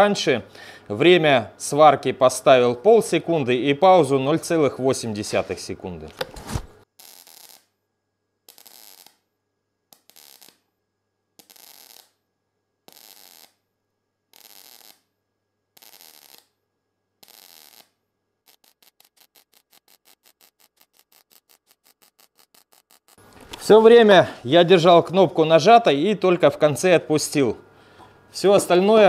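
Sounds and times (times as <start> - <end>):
welding arc crackle bursts: 6.8 - 7.8, 8.4 - 9.3, 9.9 - 10.7, 11.4 - 12.2, 12.8 - 13.6, 14.3 - 15.1, 15.7 - 16.6, 17.2 - 24.0
fast welding pulses: 7.0 - 7.7, 8.5 - 9.2, 10.0 - 10.6, 11.4 - 12.2, 12.9 - 13.6, 14.3 - 15.1, 15.8 - 16.6, 17.2 - 23.2.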